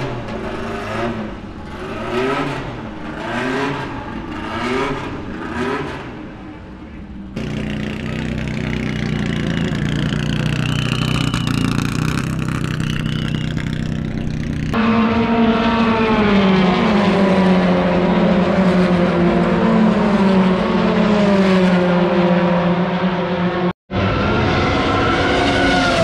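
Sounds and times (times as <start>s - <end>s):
racing car passing at high revs: 14.5s - 26.0s.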